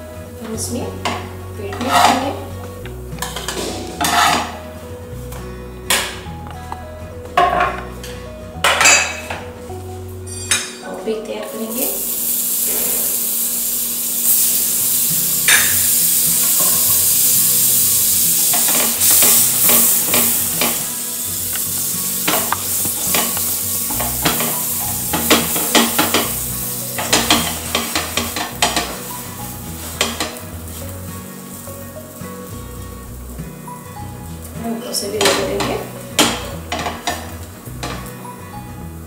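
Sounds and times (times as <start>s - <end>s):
butter sizzling on a hot pan: 11.5s - 39.0s
crackles and pops: 18.6s - 24.6s.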